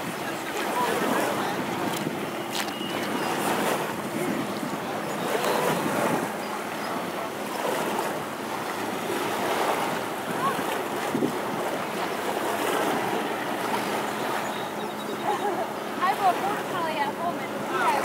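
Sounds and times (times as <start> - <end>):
wind on microphone: 0.0 - 15.2
small waves lapping: 0.0 - 18.0.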